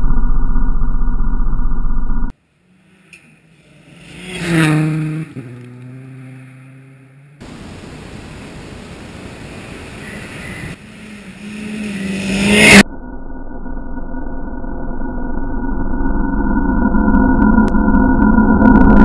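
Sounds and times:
rally car passing on gravel: 0:02.5 - 0:12.8.

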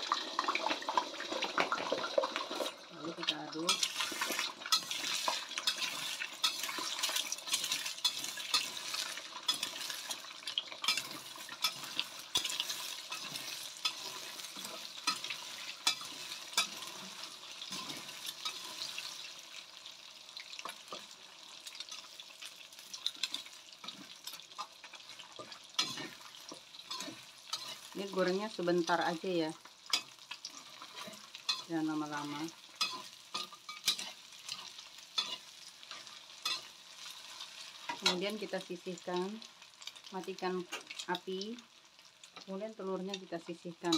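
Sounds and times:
eggs sizzling in hot oil: 0:00.0 - 0:43.9
metal spatula scraping a pan: 0:03.7 - 0:19.6, 0:22.9 - 0:29.1, 0:29.9 - 0:38.4.

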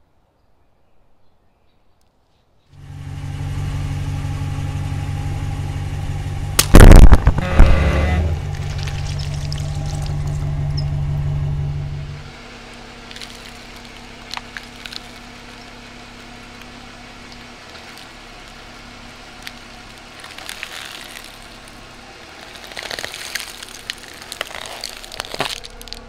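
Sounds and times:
vehicle engine humming: 0:02.7 - 0:26.0
blister packs crackling under tire: 0:08.4 - 0:11.3, 0:12.2 - 0:26.0.

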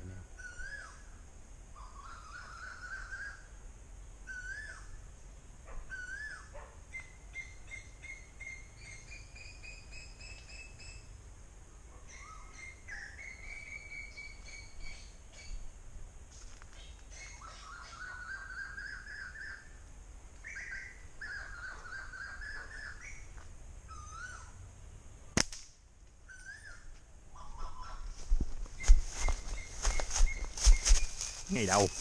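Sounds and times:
high chirps of small birds: 0:20.4 - 0:24.6
koel calling: 0:26.5 - 0:28.2.

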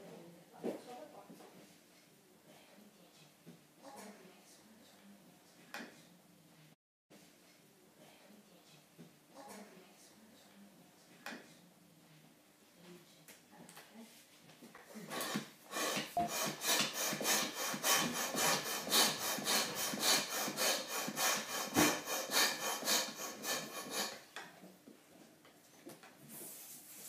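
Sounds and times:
pump and balloon handling: 0:15.1 - 0:24.1
hand pump hissing air: 0:15.1 - 0:24.2.

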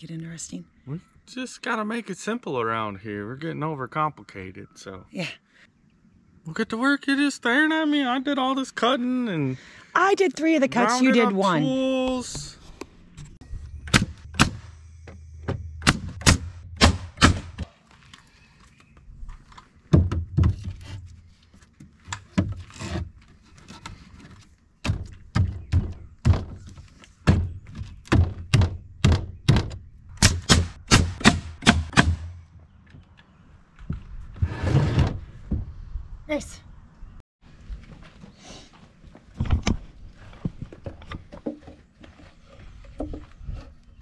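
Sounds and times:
short scraping noise: 0:34.4 - 0:35.4.

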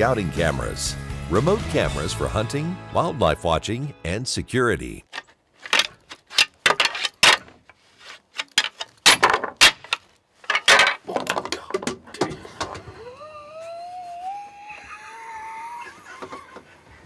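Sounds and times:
antlers clashing and grinding: 0:05.1 - 0:12.8.

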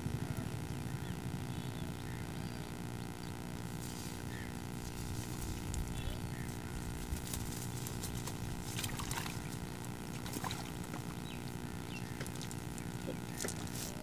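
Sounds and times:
steady low rumble: 0:00.0 - 0:13.4.

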